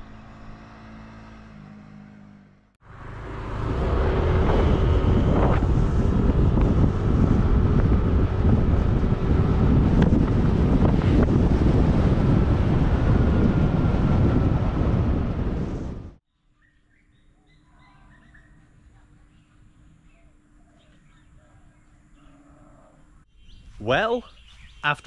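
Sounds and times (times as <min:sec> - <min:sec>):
motorbike engine running: 0:00.0 - 0:15.4
wind buffeting microphone: 0:03.0 - 0:16.2.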